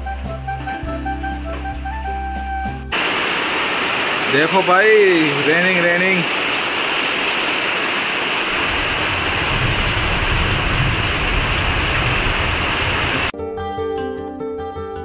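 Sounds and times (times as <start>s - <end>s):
acoustic guitar music: 0.0s - 2.9s, 13.4s - 15.0s
heavy rain pouring: 2.9s - 13.3s
water streaming off metal roof: 2.9s - 13.3s.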